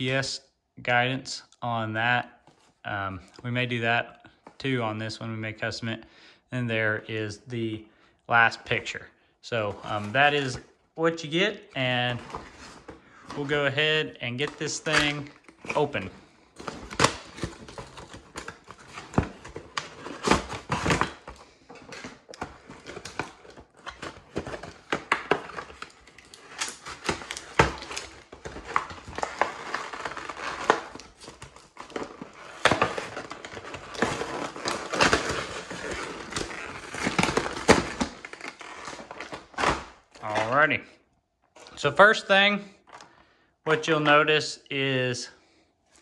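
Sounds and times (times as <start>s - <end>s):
packaging crinkling and crackling: 14.3s - 40.6s.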